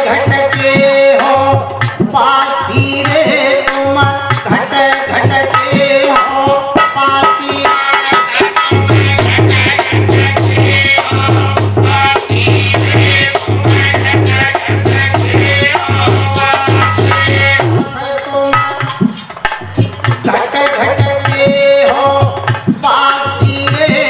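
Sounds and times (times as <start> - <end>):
hand drum: 0.0 - 24.0
person singing: 0.0 - 24.0
shaker percussion: 0.0 - 24.0.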